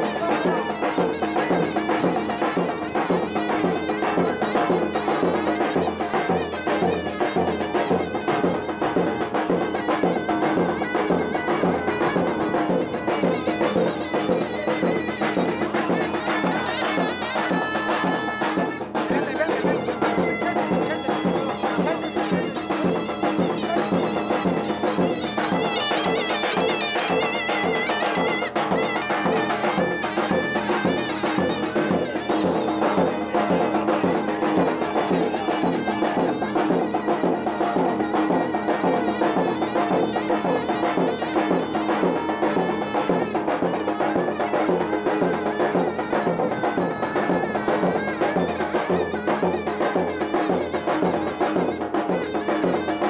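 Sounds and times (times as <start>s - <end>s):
shrill reed wind instrument: 0.0s - 53.0s
steady drum beat: 0.0s - 53.0s.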